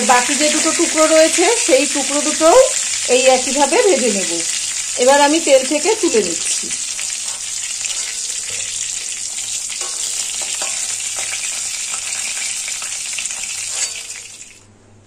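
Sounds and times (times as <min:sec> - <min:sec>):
fish sizzling in oil: 0:00.0 - 0:14.7
metal spatula scraping pan: 0:07.0 - 0:14.5.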